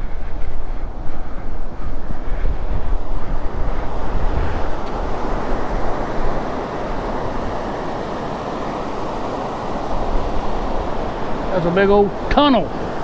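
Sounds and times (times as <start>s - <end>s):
wind buffeting microphone: 0.0s - 13.0s
water rushing from dam outlet: 2.6s - 13.0s.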